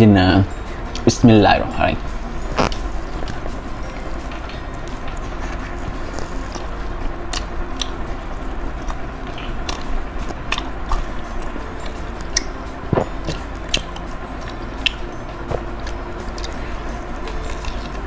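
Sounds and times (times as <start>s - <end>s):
person chewing food: 2.2s - 8.0s, 8.7s - 18.0s
mouth clicks and smacks: 2.5s - 3.5s.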